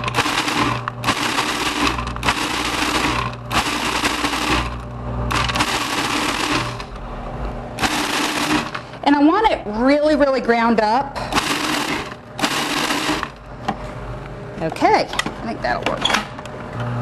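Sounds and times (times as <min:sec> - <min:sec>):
food processor grinding nuts: 0:00.0 - 0:07.1, 0:07.8 - 0:09.0, 0:11.3 - 0:13.4.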